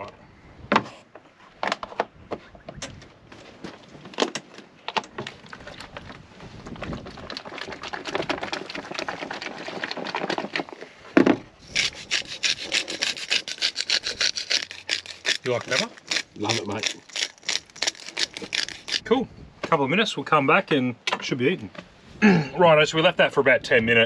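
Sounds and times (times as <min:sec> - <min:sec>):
spice grinder ratcheting: 0:11.6 - 0:19.0
plastic crinkling: 0:11.7 - 0:19.0.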